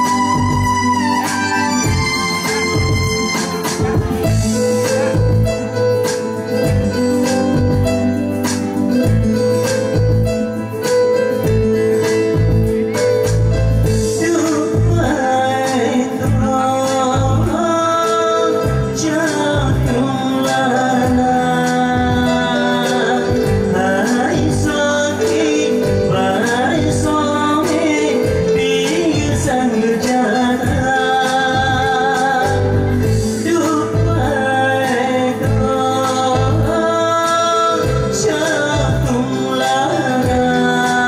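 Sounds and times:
steady drum beat: 0.0s - 17.6s
electronic keyboard playing: 0.0s - 41.0s
man singing into a microphone: 0.0s - 41.0s.

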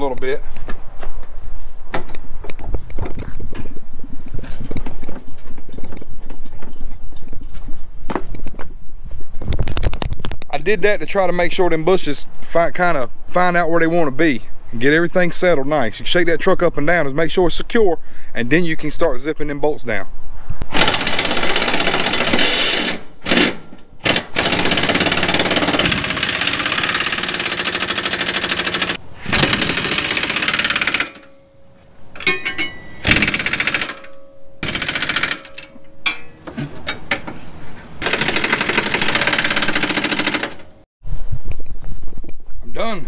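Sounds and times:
pneumatic impact wrench hammering: 20.6s - 31.5s, 32.2s - 37.3s, 38.0s - 40.8s.

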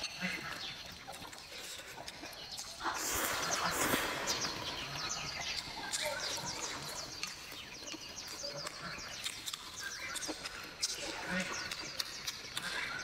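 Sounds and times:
bird chirping: 0.0s - 13.0s.

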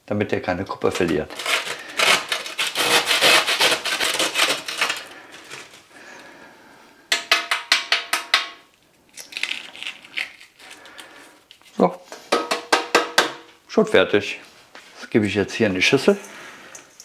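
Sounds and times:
bread grating on a grater: 1.0s - 5.0s.

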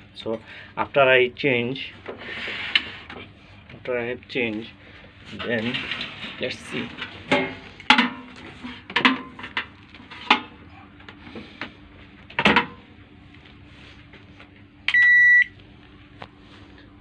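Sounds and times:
microwave humming: 0.0s - 17.0s
microwave knocks and clatters: 12.4s - 12.8s
microwave beep: 14.8s - 15.6s.

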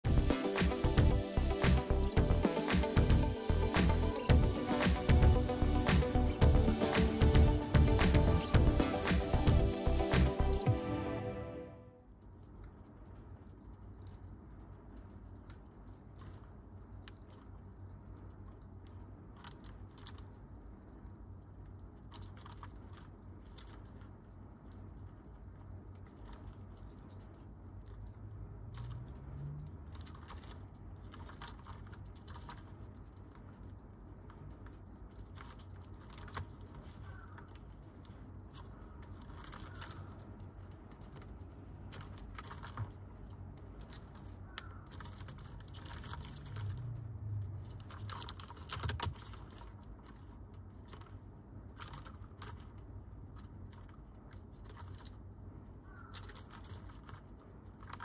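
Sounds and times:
low steady hum: 0.0s - 58.0s
beetles scratching and clicking: 12.5s - 58.0s.

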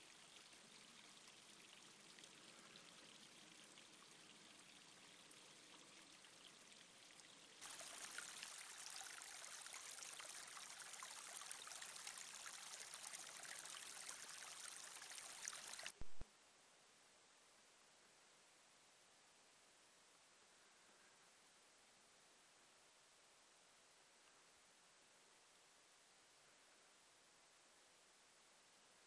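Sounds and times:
brook trickling: 0.0s - 16.2s.

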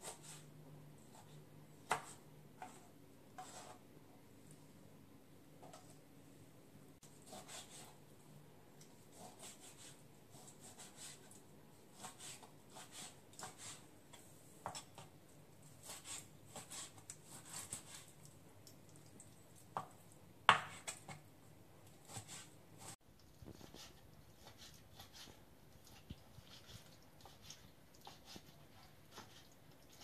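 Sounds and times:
knife slicing meat: 9.1s - 11.4s, 15.8s - 18.1s.

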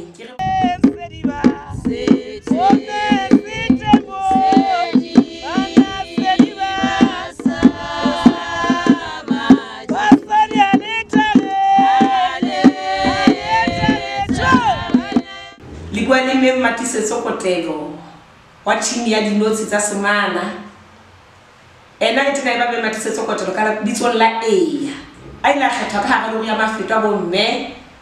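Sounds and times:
drum beating steady rhythm: 0.4s - 15.6s
women singing together: 0.4s - 16.1s.

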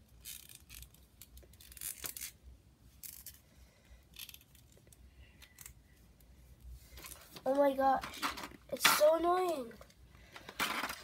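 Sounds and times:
plastic parts rustling and clicking: 6.9s - 11.0s.

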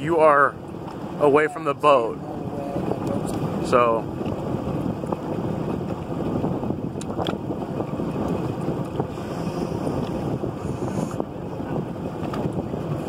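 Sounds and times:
motorboat engine idling: 0.0s - 13.0s
wind buffeting the microphone: 0.0s - 13.0s.

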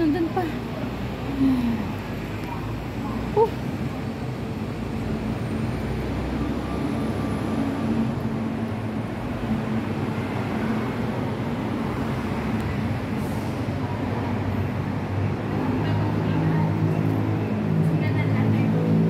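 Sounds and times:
road traffic drone: 0.0s - 19.0s.

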